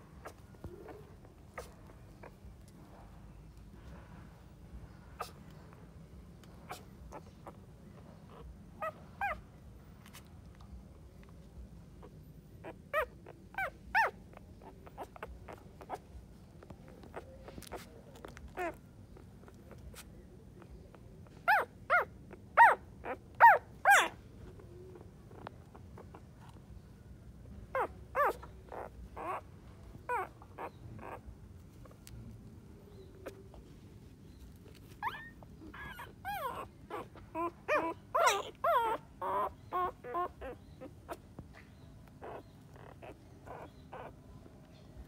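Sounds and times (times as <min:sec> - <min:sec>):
puppy whimpering: 0:00.1 - 0:03.6, 0:04.9 - 0:10.7, 0:12.0 - 0:32.2, 0:32.8 - 0:44.9.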